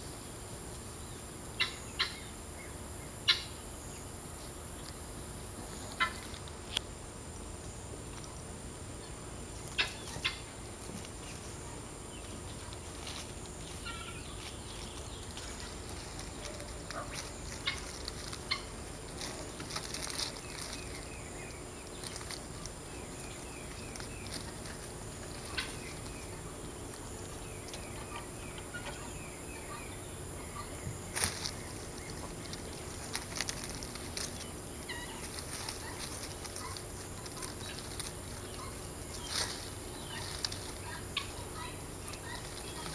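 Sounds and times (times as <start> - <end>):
leaves rustling: 0.0 - 42.9
faint rapid bird trills: 9.0 - 42.9.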